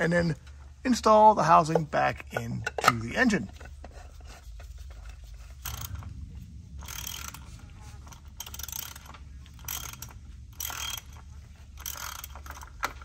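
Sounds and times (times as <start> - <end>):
ratchet wrench clicking: 5.6 - 6.1, 6.8 - 13.0.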